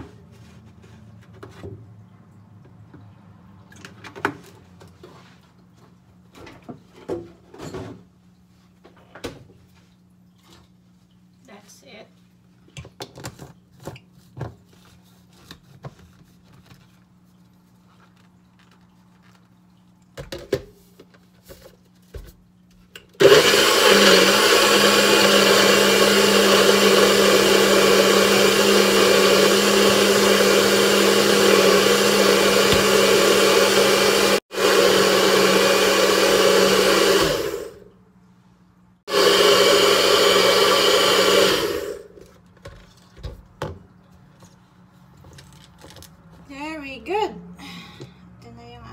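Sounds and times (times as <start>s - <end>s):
blender motor whirring: 23.2s - 37.8s, 39.1s - 42.2s.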